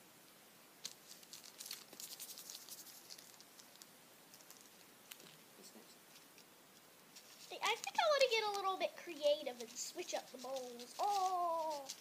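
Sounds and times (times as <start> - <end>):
candy sprinkles ticking in plastic tray: 7.6 - 12.0.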